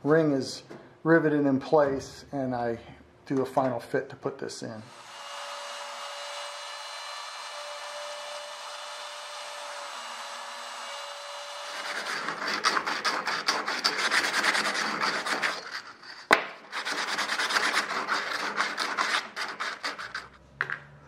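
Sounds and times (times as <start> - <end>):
router spindle whine: 4.9 - 11.8
sandpaper rubbing on metal: 11.7 - 20.4.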